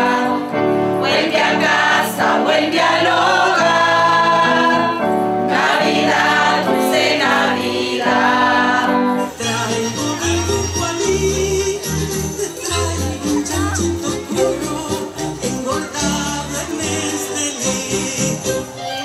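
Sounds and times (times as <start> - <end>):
women's choir singing a carol: 0.0 - 10.0.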